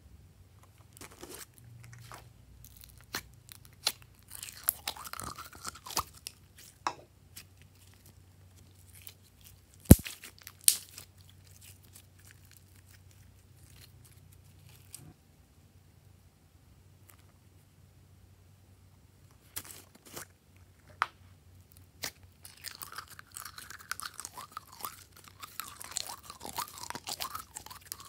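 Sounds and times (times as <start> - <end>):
slime squishing and crackling: 0.6 - 15.1, 21.8 - 28.0.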